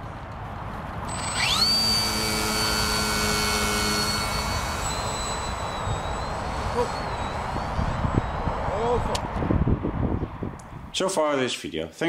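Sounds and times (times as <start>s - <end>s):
electric motor and propeller whine: 1.0s - 9.8s.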